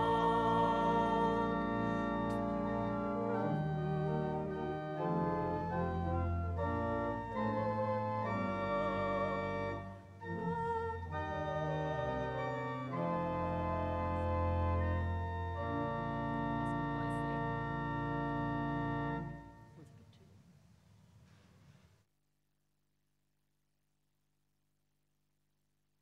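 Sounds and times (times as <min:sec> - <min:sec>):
church organ playing a hymn: 0:00.0 - 0:19.8.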